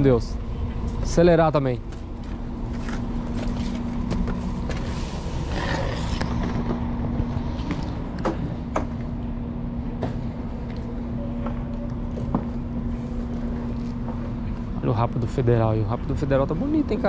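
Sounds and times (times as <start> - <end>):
diesel engine idling: 0.0 - 7.0.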